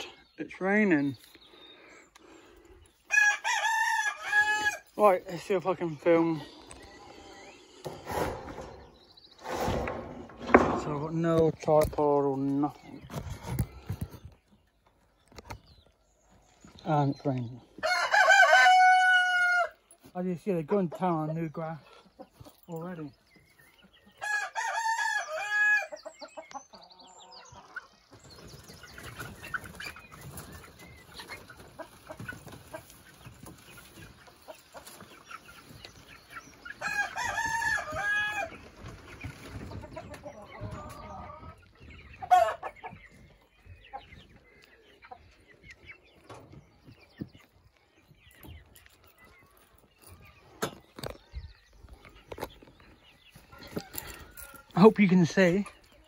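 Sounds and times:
rooster crowing: 3.1s - 4.8s, 17.8s - 19.7s.

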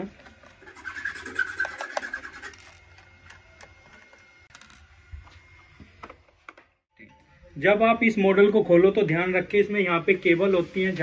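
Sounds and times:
screwdriver scraping rasp: 0.4s - 3.2s.

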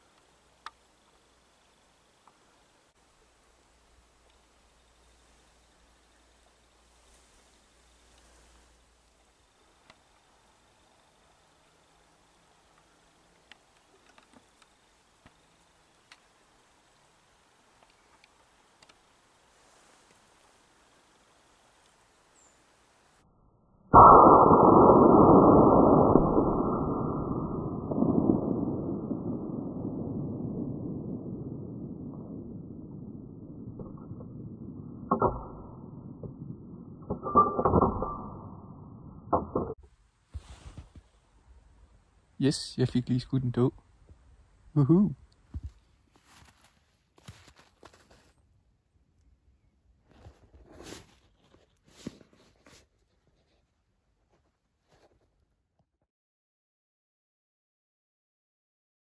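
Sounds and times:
faint steady hiss: 0.0s - 23.3s, 39.7s - 55.2s
low rumble: 23.8s - 39.8s
slowed rifle shot booms: 24.0s - 39.8s.

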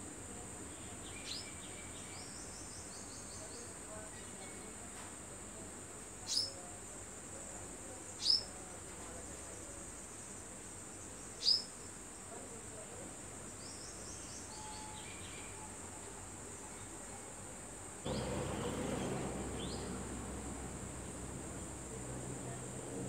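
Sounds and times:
insects trilling: 6.2s - 6.6s, 7.6s - 8.5s, 9.5s - 12.2s
bird chirps: 18.1s - 20.3s
low rushing noise: 18.1s - 23.0s.

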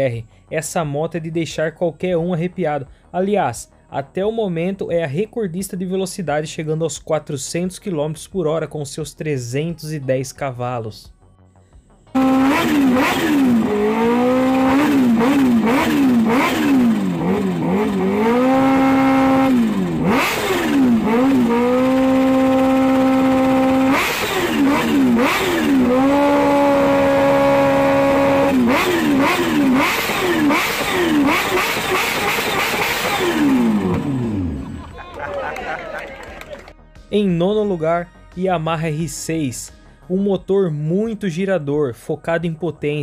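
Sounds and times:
motorcycle engine revving: 12.1s - 34.9s.

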